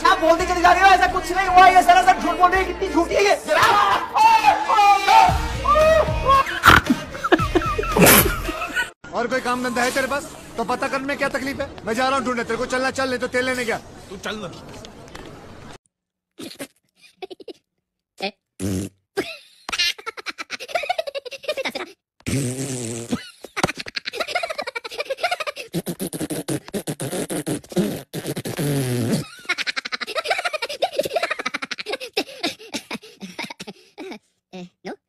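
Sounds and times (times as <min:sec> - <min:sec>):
cartoon voices blowing raspberries: 0:25.7 - 0:29.2.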